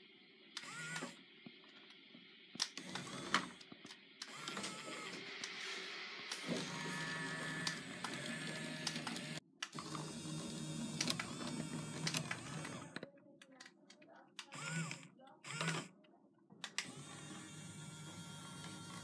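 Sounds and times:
toy electric motor whirring: 0.6 - 1.2, 2.6 - 13.0, 14.4 - 15.9, 16.6 - 19.0.

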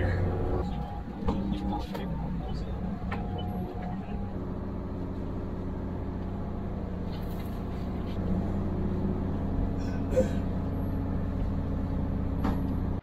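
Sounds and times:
boat engines droning: 0.0 - 13.0.

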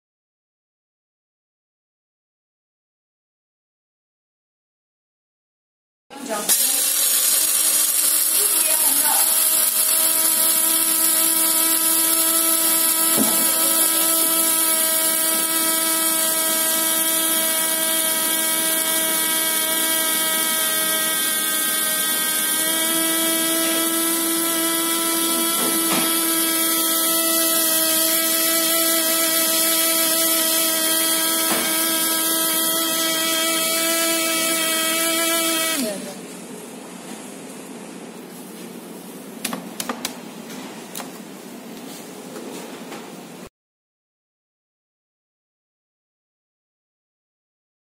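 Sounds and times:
coffee grinder motor whining: 6.5 - 36.2.

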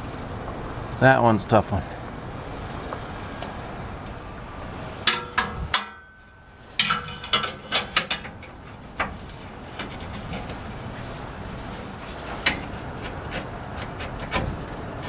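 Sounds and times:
sharp metal clicks and knocks: 5.0 - 10.6, 12.2 - 14.6.

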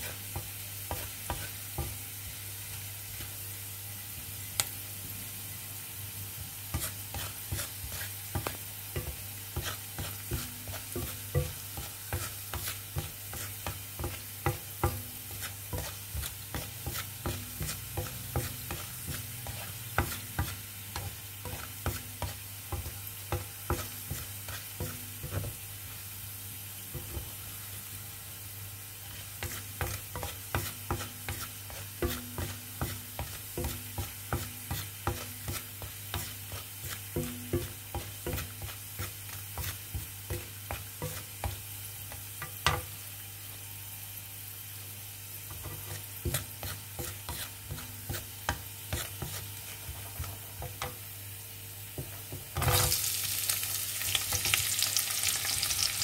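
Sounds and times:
spatula scraping and tapping pan: 0.0 - 3.4, 6.3 - 25.9, 26.8 - 27.4, 29.0 - 43.0, 45.4 - 51.2, 51.9 - 53.2, 54.0 - 55.9
garlic sizzling in oil: 0.0 - 56.0.

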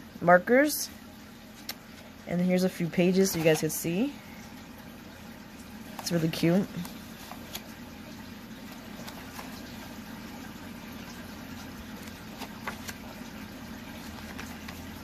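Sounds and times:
paper pages turning: 6.7 - 7.8, 8.6 - 9.9, 11.9 - 13.3, 13.9 - 15.0.

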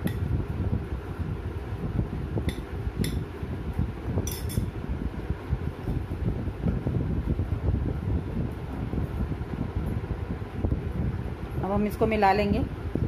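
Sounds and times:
low background rumble: 0.0 - 13.0
metal spoon clinking glass bowl: 4.3 - 4.7.

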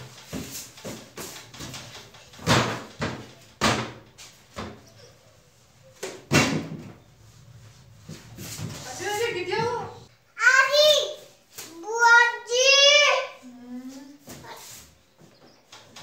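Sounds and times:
scraping rustles: 0.0 - 6.3, 6.9 - 10.1.

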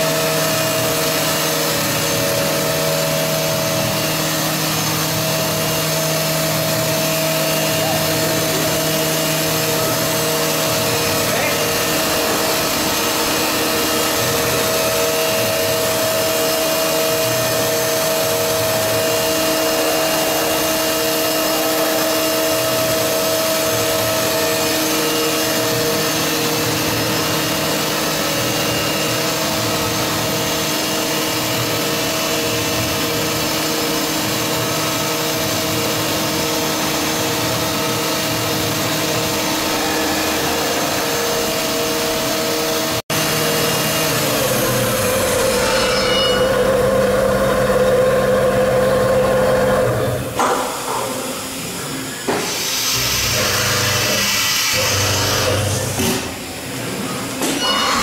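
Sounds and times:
machining center running: 0.0 - 58.0.

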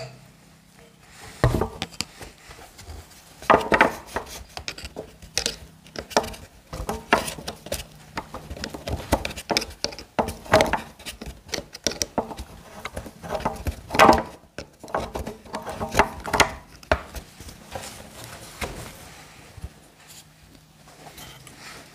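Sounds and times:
tool clicking and scraping metal: 3.5 - 17.2.

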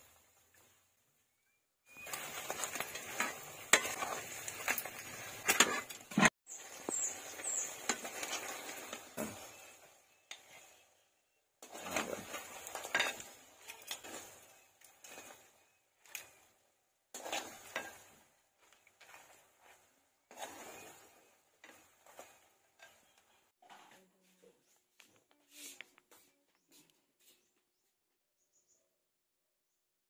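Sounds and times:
sauce sizzling: 1.9 - 10.6, 17.1 - 22.4
spatula scraping a wok: 1.9 - 11.0, 11.6 - 24.0.

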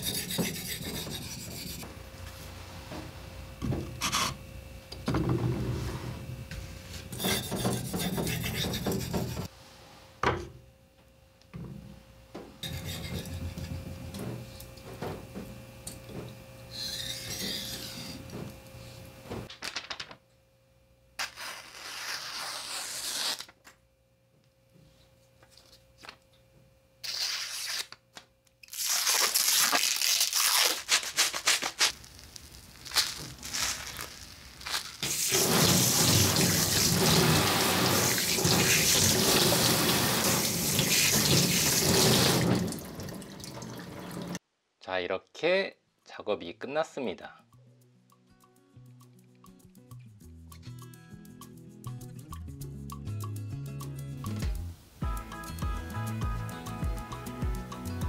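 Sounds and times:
knife scraping on whetstone: 0.0 - 1.8, 7.1 - 9.5, 12.6 - 13.8, 16.7 - 18.5
sponge scrubbing blade: 0.0 - 1.8, 7.1 - 9.5, 12.6 - 13.7, 16.7 - 18.3, 35.0 - 42.4.

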